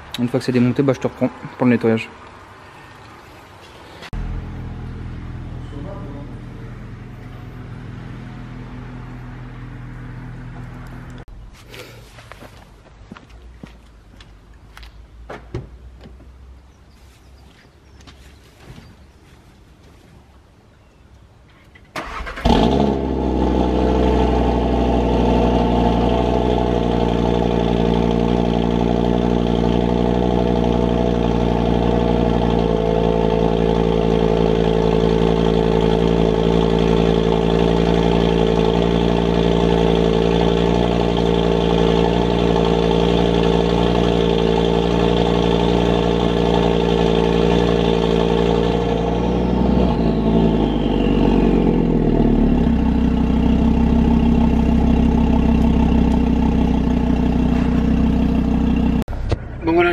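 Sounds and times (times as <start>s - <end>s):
car engine idling: 4.1s - 11.4s, 22.0s - 59.9s.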